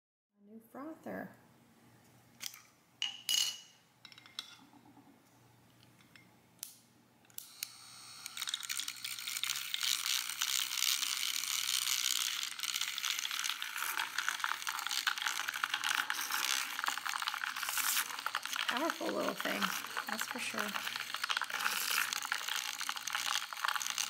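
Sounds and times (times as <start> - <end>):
milk frother whirring: 7.4 - 24.0.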